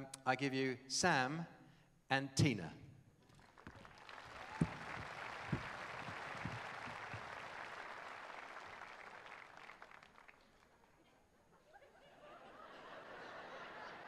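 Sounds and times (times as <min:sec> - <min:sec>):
audience applauding: 0:03.3 - 0:10.9
microphone knocking into stand: 0:04.6 - 0:07.2.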